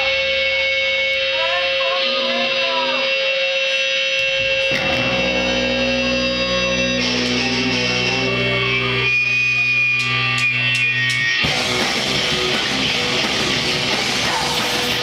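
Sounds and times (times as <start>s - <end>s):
held guitar notes ringing: 0.0s - 15.0s
live rock band: 0.0s - 15.0s.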